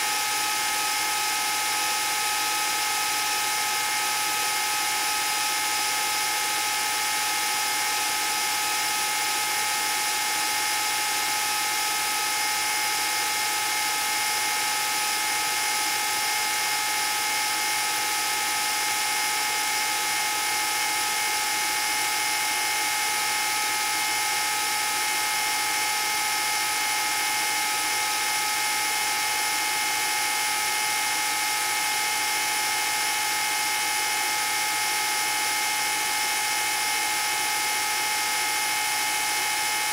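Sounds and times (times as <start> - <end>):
film projector motor whine: 0.0 - 39.9.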